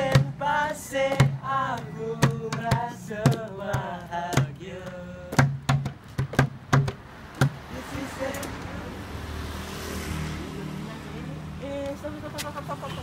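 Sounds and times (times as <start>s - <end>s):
young men singing together: 0.0s - 5.8s, 7.4s - 9.2s.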